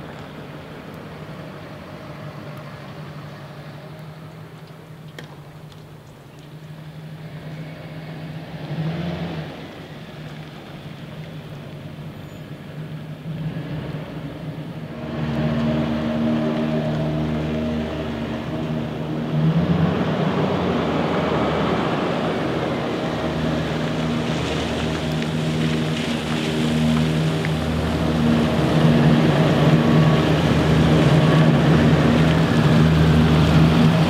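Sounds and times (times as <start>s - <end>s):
truck engine humming: 9.5s - 34.0s.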